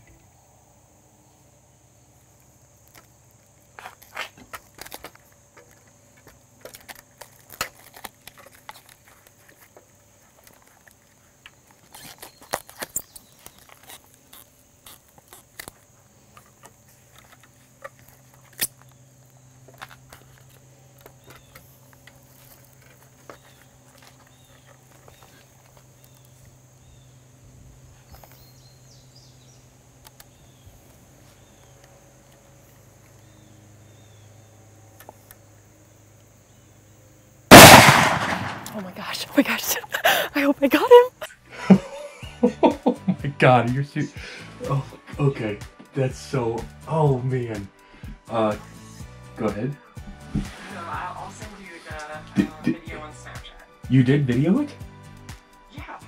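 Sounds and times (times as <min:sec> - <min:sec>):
faint steady hum: 0:00.0 - 0:43.1
light clicks and dry crackling rustles: 0:02.2 - 0:27.1, 0:27.9 - 0:28.6, 0:30.0 - 0:33.4.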